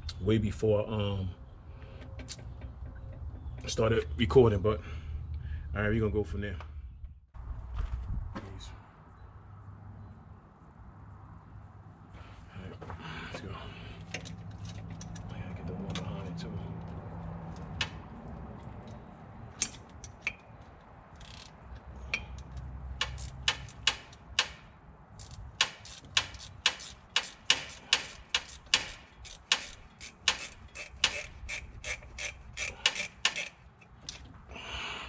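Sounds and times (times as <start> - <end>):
ratchet wrench clicking: 21.2 - 21.6, 22.2 - 24.6, 25.2 - 33.6.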